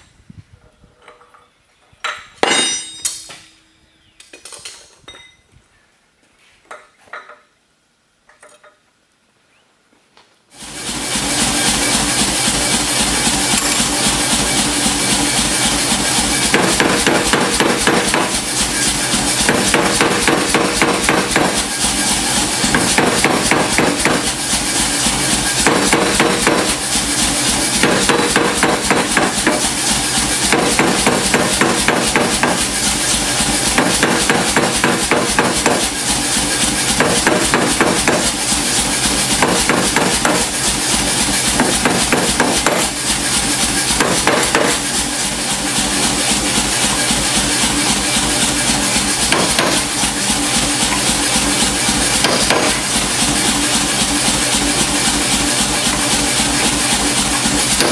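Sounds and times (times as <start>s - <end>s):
power hammer pounding steel: 2.4s - 3.3s, 15.1s - 45.2s, 46.3s - 57.9s.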